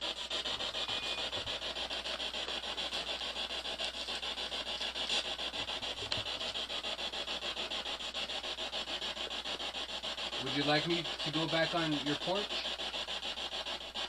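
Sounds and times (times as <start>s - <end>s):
pulsing radio static: 0.6s - 1.4s, 10.4s - 12.7s.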